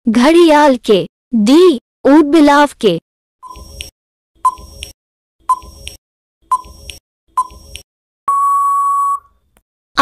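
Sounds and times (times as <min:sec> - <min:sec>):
timer click: 0:04.5 - 0:07.9
short electronic beep: 0:08.3 - 0:09.3.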